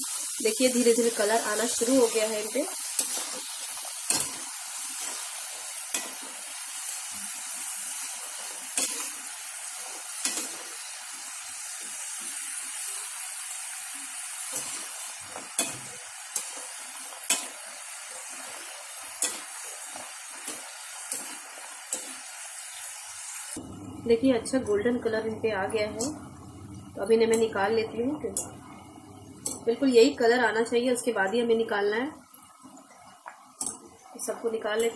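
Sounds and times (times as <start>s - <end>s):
deep-frying sizzle: 0.0s - 34.9s
metallic clicks of skimmer on pan: 29.4s - 29.7s.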